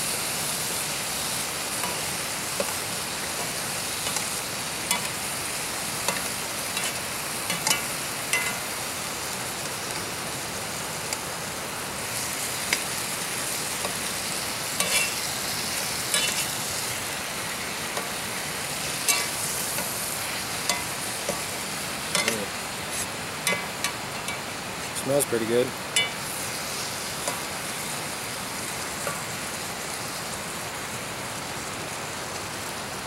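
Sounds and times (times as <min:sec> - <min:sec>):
onions sizzling in oil: 0:00.0 - 0:33.0
metal utensil scraping pan: 0:04.9 - 0:05.2, 0:06.1 - 0:08.6, 0:14.8 - 0:15.2, 0:16.1 - 0:16.5, 0:19.0 - 0:20.0, 0:20.6 - 0:21.5, 0:22.1 - 0:24.5.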